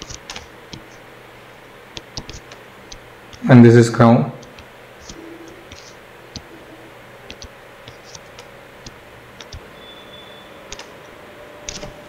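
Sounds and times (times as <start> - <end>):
stylus tapping on a tablet: 2.0 - 3.0, 7.2 - 9.6.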